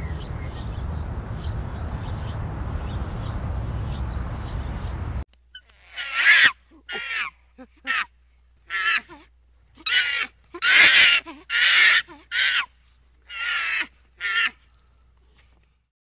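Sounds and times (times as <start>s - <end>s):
short harsh animal calls: 5.5s - 8.1s.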